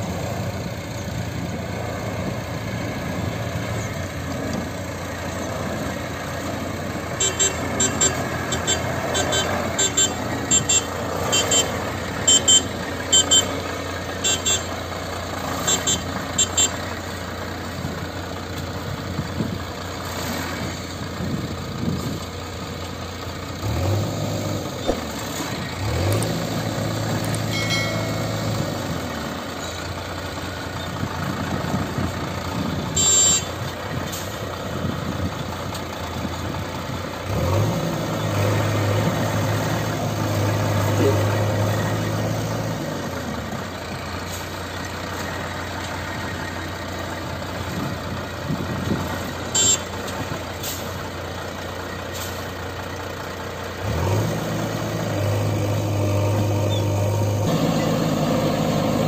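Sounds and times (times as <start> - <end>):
diesel lorry engine running: 0.0 - 59.0
reversing alarm beeping: 7.2 - 13.6, 33.0 - 33.6, 49.5 - 49.9.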